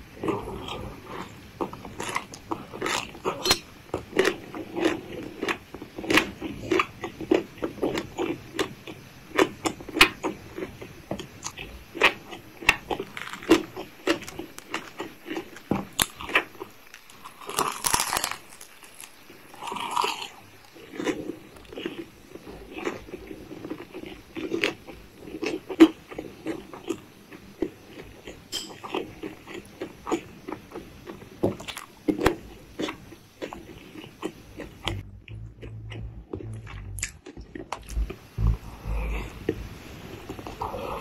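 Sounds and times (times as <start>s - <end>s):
crunchy bite into fried chicken: 11.4s - 22.1s
chewing with wet mouth clicks: 20.9s - 38.2s.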